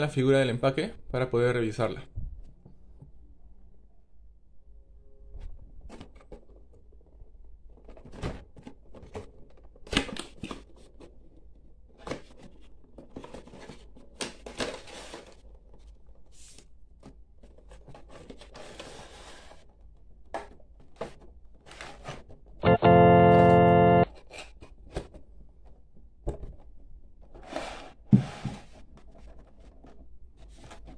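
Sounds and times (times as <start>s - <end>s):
organ-like chord: 22.6s - 24.0s.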